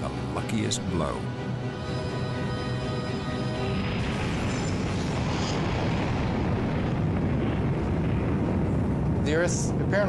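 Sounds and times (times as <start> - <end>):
dense rumbling roar: 4.0 - 10.0.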